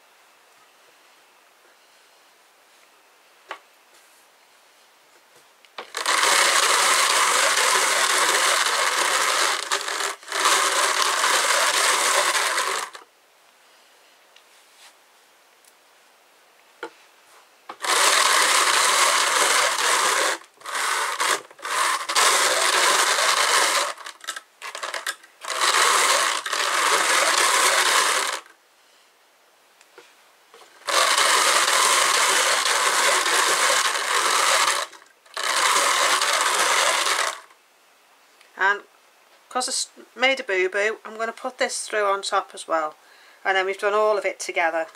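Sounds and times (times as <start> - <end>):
drum carder whirring and rasping: 5.8 - 13.0, 17.7 - 28.5, 30.8 - 37.5.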